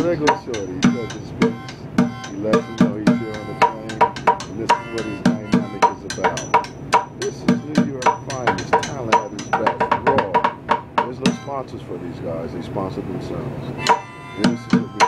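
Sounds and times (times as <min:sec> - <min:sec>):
harmonica chords: 0:00.0 - 0:09.6, 0:11.2 - 0:11.7, 0:13.7 - 0:15.0.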